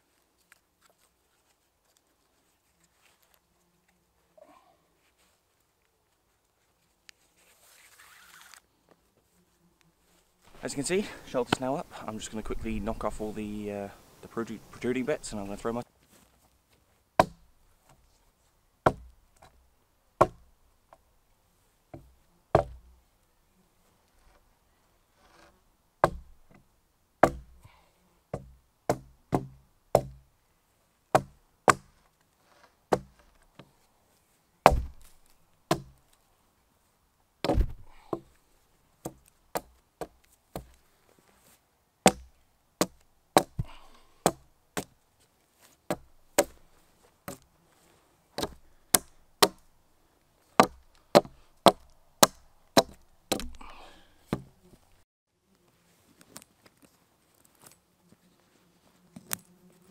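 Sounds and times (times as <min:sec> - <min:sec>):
axe chopping wood: 0:17.2 - 0:17.5, 0:18.8 - 0:19.6, 0:20.2 - 0:20.5, 0:21.9 - 0:22.9, 0:26.0 - 0:26.4, 0:27.2 - 0:27.6, 0:28.3 - 0:30.3, 0:31.1 - 0:31.9, 0:32.9 - 0:33.2, 0:34.6 - 0:36.0, 0:37.4 - 0:38.4, 0:39.0 - 0:40.8, 0:42.0 - 0:45.0, 0:45.9 - 0:46.7, 0:48.4 - 0:49.7, 0:50.6 - 0:54.6.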